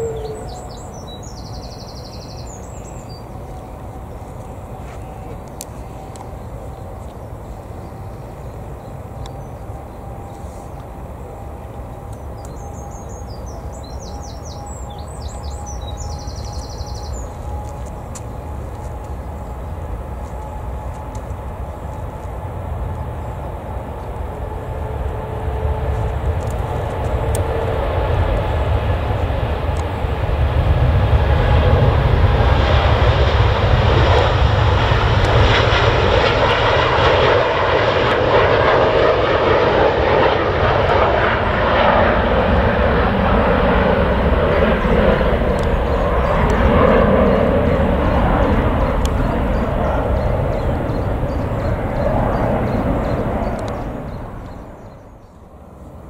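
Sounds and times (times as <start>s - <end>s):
jet airliner engines at take-off: 0.0s - 56.0s.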